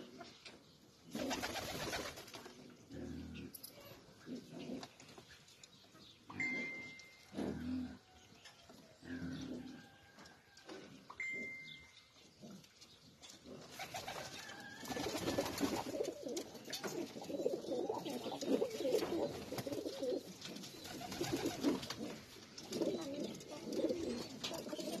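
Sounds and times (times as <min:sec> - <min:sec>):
pigeons cooing: 0:01.0 - 0:05.2, 0:06.4 - 0:08.2, 0:09.0 - 0:10.1, 0:12.4 - 0:25.0.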